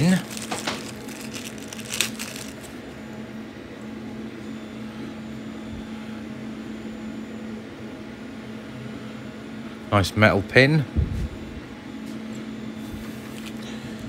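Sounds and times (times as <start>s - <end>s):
plastic bag rustle: 0.0s - 2.8s
low machine hum: 0.0s - 14.0s.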